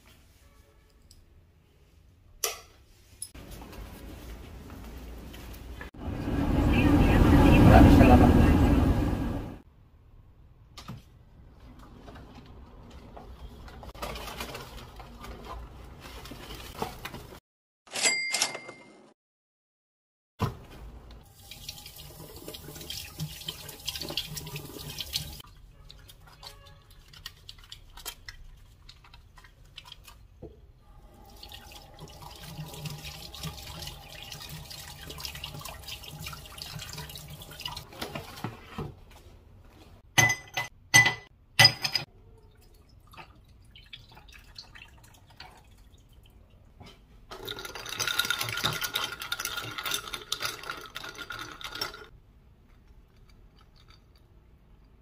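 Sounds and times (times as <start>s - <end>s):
tap water running into sink: 21.3s - 25.4s, 31.2s - 37.8s
drink stirred in a glass: 47.4s - 52.1s.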